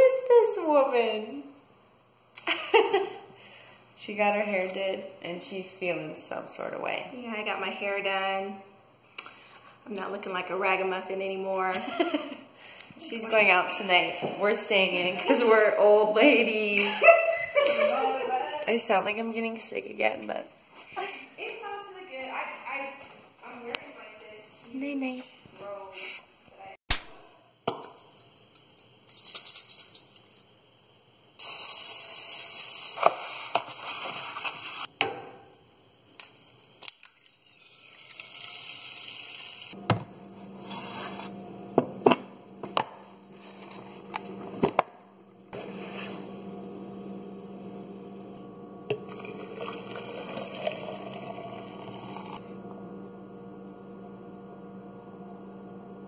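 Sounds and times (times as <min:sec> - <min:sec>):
hiss: 0:31.4 - 0:34.9
steady electrical hum: 0:34.9 - 0:56.0.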